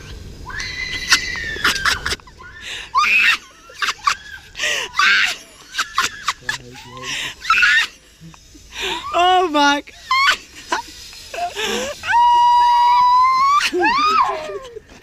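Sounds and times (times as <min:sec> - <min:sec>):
low rumble: 0:00.0 - 0:03.0
excited calls: 0:00.0 - 0:14.4
high whine: 0:00.0 - 0:15.0
people screaming and laughing: 0:00.0 - 0:15.0.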